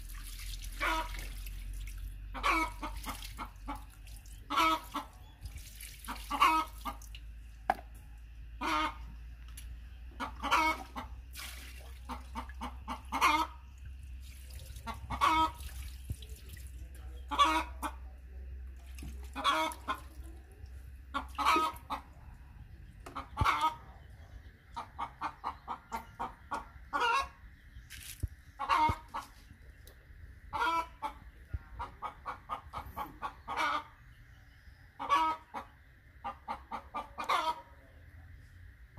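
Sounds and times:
chickens clucking: 0.8s - 1.3s, 2.2s - 5.5s, 6.1s - 7.1s, 7.7s - 11.3s, 12.0s - 14.2s, 14.8s - 38.3s.

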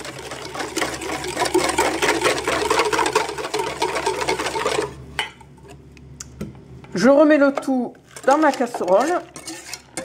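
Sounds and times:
whisk beating in metal bowl: 0.0s - 5.0s, 8.2s - 10.0s.

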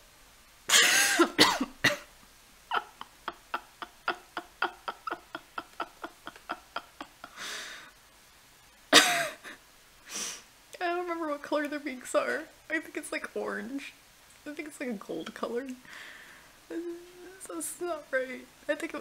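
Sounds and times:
person coughing hard: 0.7s - 2.1s
person breathing: 7.3s - 8.0s, 10.0s - 10.5s, 15.8s - 16.6s.

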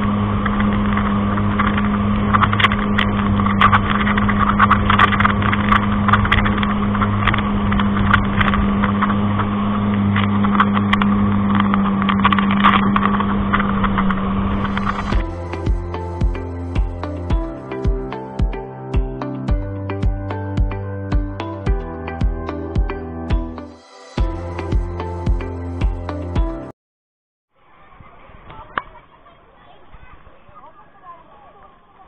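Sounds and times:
motorboat engine droning: 0.0s - 16.0s.

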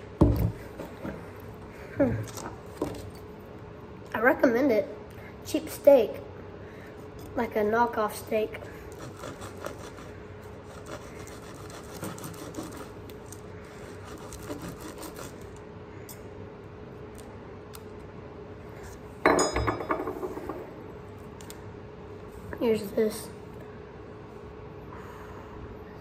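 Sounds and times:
knife sawing through meat: 8.9s - 15.6s
knife clattering on table: 19.2s - 20.3s.

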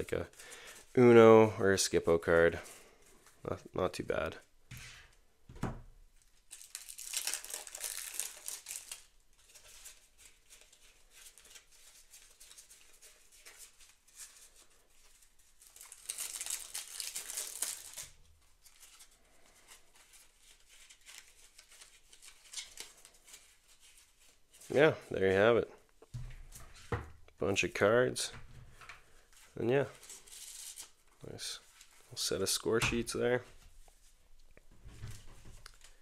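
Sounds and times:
playing cards rustling: 6.2s - 25.5s, 26.3s - 34.2s.

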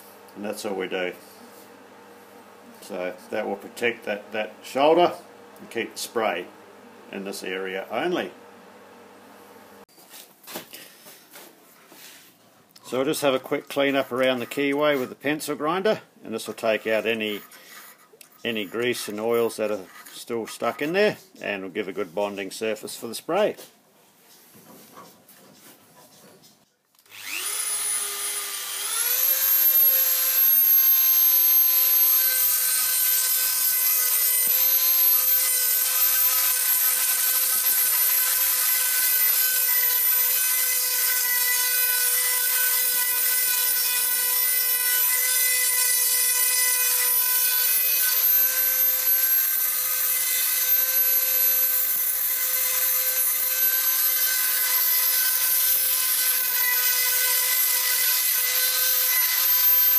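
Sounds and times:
burr grinding steel: 27.0s - 59.9s
pencil grinder whining: 27.0s - 59.9s.

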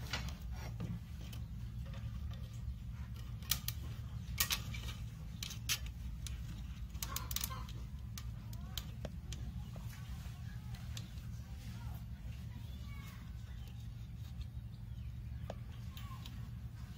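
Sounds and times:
steady low hum: 0.0s - 16.9s
wire fan guard clicking: 3.2s - 9.4s.

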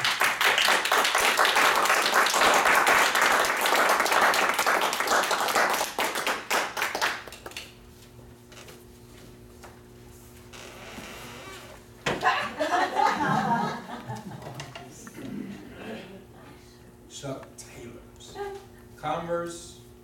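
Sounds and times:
audience applauding: 0.0s - 7.8s
faint steady hum: 0.0s - 20.0s.

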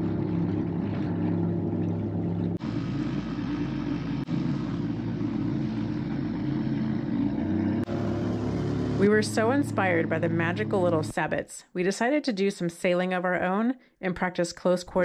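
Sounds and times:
outboard motor humming: 0.0s - 11.3s.

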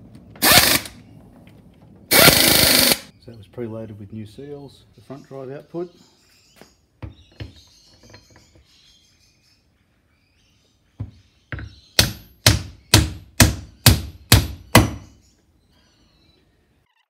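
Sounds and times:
hammer blows on timber block: 11.6s - 15.1s.

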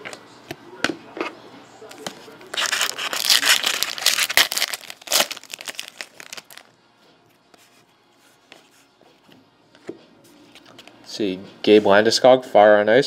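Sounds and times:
card wrapper tearing and crinkling: 2.5s - 6.7s.

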